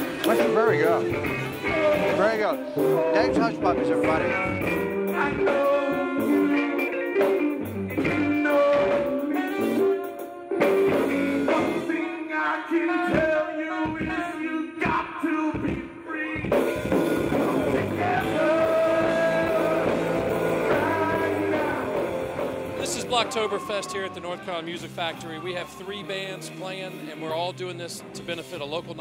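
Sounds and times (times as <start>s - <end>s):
live rock band playing: 0.0s - 12.1s, 16.5s - 29.0s
lead singer singing: 1.3s - 10.2s, 11.3s - 16.7s, 17.3s - 26.0s.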